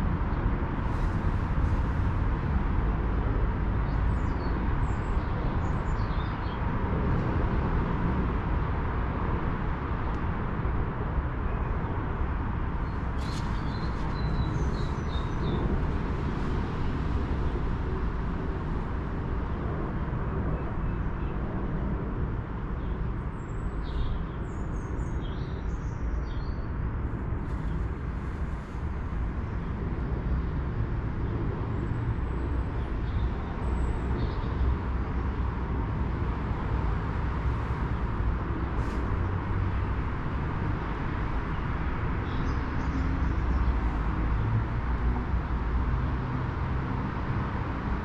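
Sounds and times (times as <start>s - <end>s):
low outdoor rumble: 0.0s - 23.8s
small birds chirping: 12.8s - 18.0s.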